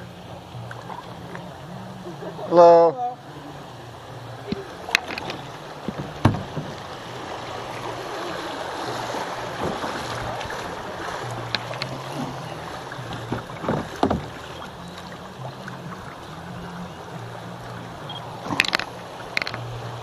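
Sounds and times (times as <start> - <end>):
river water rushing and splashing: 0.0 - 20.0
sharp knocks against kayak hull: 4.5 - 6.8, 9.6 - 10.1, 13.1 - 14.4.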